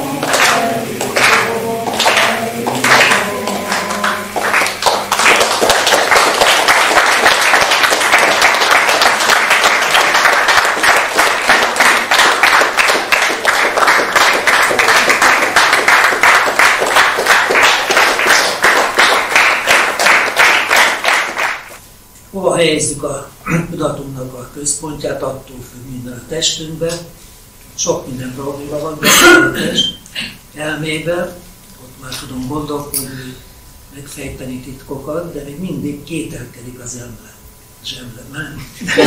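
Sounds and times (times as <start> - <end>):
crowd applauding: 0.0 - 21.8.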